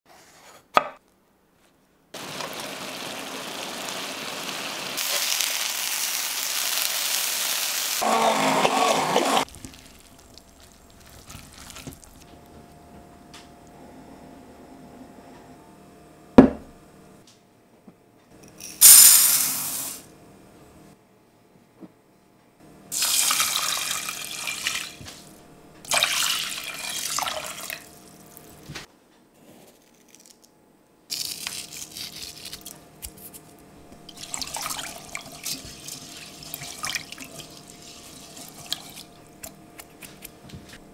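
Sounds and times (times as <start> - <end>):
vegetables sizzling in hot oil: 2.2 - 8.1, 18.8 - 20.0
water pouring onto rice in pot: 23.0 - 24.9, 34.1 - 39.1.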